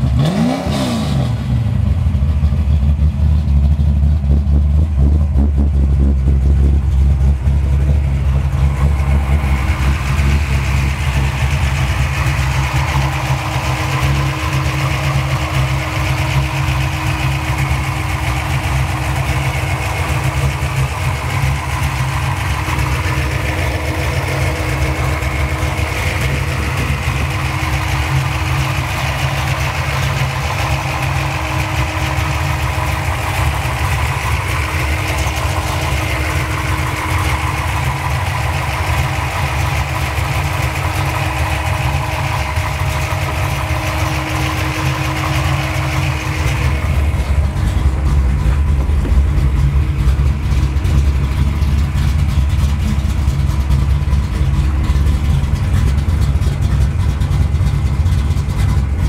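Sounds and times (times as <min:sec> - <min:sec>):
car engine idling: 0:00.0 - 0:59.0.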